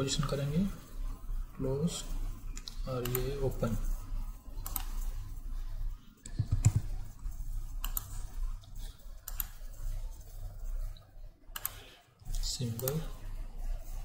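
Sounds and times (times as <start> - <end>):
low electrical hum: 0.0 - 14.0
keyboard keystrokes: 6.3 - 7.0
mouse clicks: 11.6 - 11.8.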